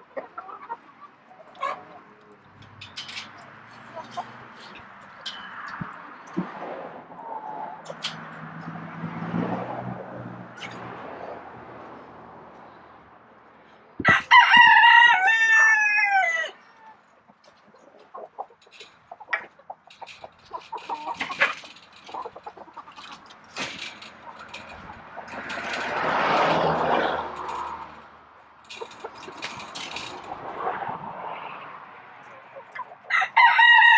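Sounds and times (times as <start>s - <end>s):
hen clucks: 0.0s - 2.4s, 16.7s - 25.9s, 32.2s - 33.2s
rooster crowing: 14.1s - 16.6s, 33.1s - 33.9s.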